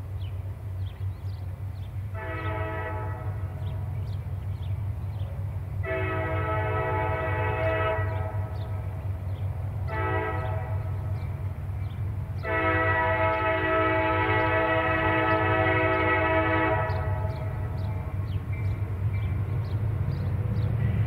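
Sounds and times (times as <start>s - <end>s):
diesel locomotive engine rumbling: 0.0s - 21.0s
locomotive air horn blasts: 2.1s - 3.8s, 5.8s - 8.8s, 9.8s - 11.2s, 12.4s - 17.9s.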